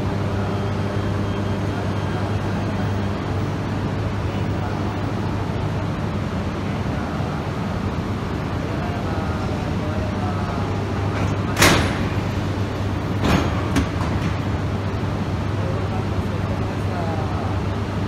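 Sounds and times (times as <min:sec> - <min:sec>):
low hum of trains: 0:00.0 - 0:18.0
train couplers clanking: 0:11.1 - 0:14.8.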